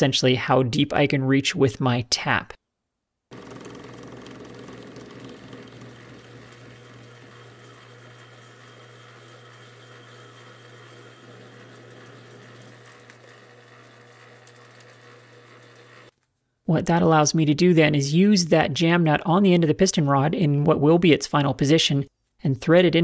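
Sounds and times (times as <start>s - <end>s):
metal lathe motor hum: 3.3s - 16.1s.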